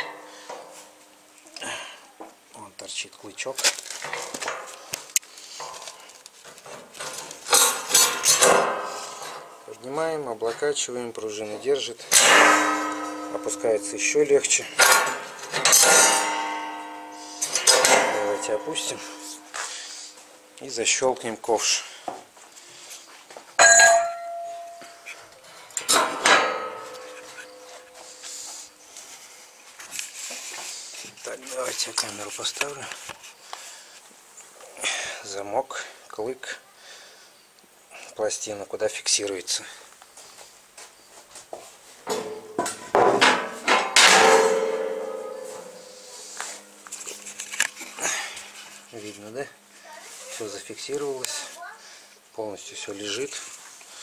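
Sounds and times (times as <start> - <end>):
metal bucket clanking onto plate: 12.1 - 20.0, 25.8 - 28.2
steel ringing: 12.1 - 21.0, 23.6 - 29.0, 44.0 - 49.0.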